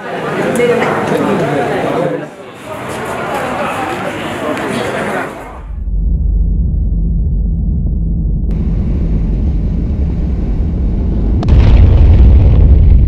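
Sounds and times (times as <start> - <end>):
low rumbling drone: 5.5 - 13.0
boom-like hit: 5.6 - 13.0.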